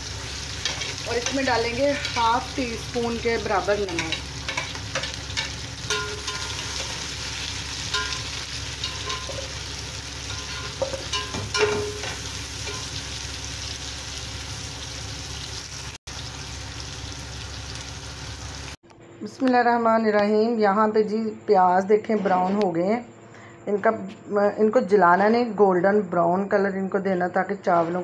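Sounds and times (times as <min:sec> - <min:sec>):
onions sizzling in ghee: 0:00.0 - 0:18.8
metal spatula scraping pot: 0:00.6 - 0:02.6, 0:03.9 - 0:13.0.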